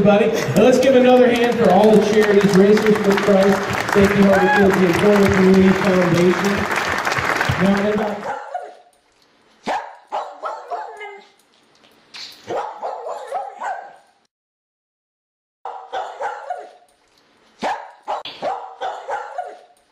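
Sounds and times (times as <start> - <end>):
dog barking: 8.2 - 8.9, 9.6 - 11.4, 12.5 - 14.1, 15.7 - 16.9, 17.6 - 19.8.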